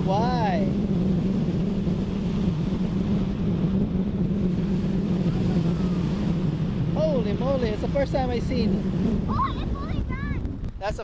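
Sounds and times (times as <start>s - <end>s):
wind on microphone: 0.0s - 11.0s
ocean surf: 4.5s - 11.0s.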